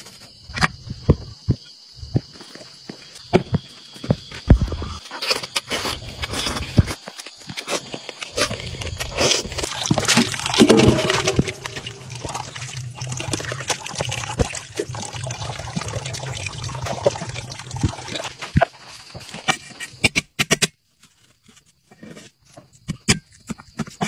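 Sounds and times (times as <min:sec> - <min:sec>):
liquid sloshing and dripping: 0:08.8 - 0:18.6.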